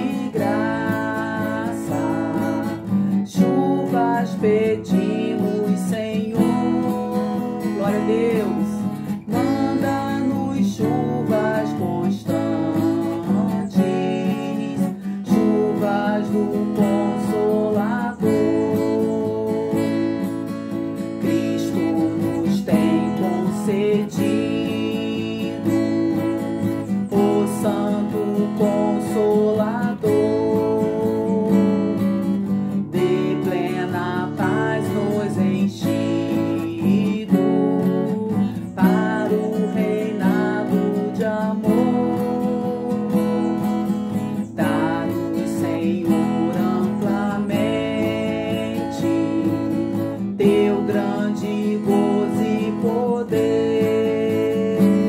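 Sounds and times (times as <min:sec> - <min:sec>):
acoustic guitar strumming chords: 0:00.0 - 0:55.0.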